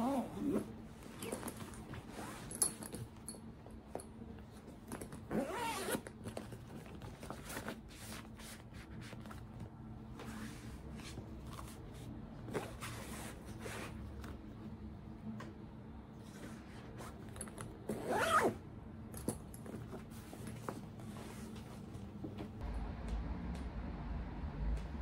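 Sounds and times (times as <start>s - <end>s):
bag zipper being pulled: 5.3s - 6.0s, 17.9s - 18.6s.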